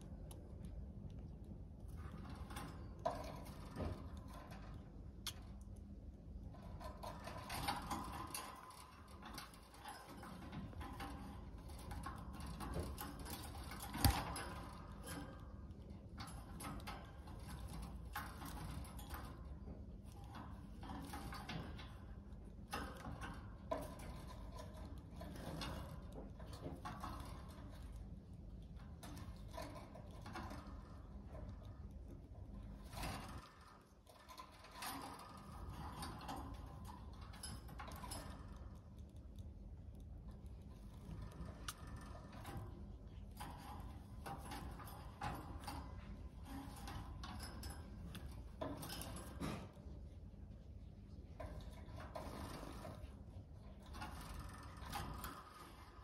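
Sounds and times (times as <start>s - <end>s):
beak and feet tapping on cage bars: 0.0s - 56.0s
faint low hum: 0.0s - 56.0s.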